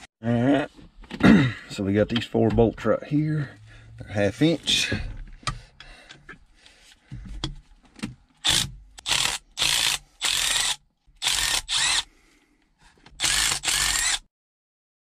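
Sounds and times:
cordless ratchet whirring: 0:08.4 - 0:12.1, 0:13.1 - 0:14.3.

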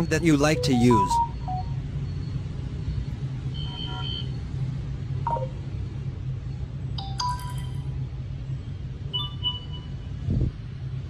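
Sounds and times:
steady low hum: 0:00.0 - 0:03.6.

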